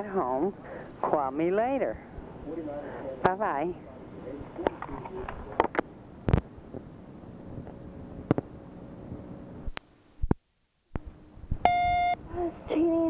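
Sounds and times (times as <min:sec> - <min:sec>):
faint hum: 0:00.0 - 0:13.0
tape hiss: 0:00.0 - 0:13.0
electronic beep: 0:11.6 - 0:12.2.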